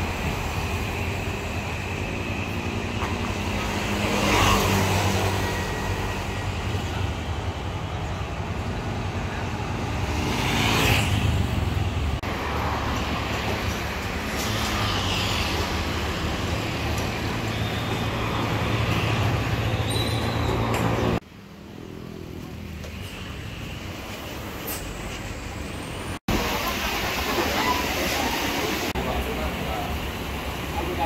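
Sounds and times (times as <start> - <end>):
cars passing: 0.0 - 22.9
motorbikes passing: 8.2 - 22.7.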